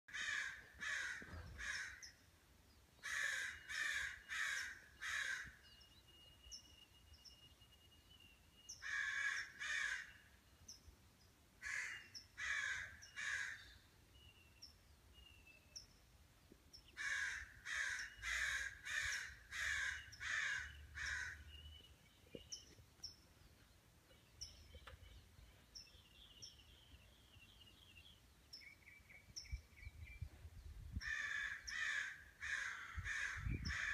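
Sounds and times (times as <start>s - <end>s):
crow cawing: 0.1s - 2.1s, 3.0s - 5.6s, 8.8s - 10.2s, 11.6s - 13.7s, 17.0s - 21.5s, 31.0s - 33.9s.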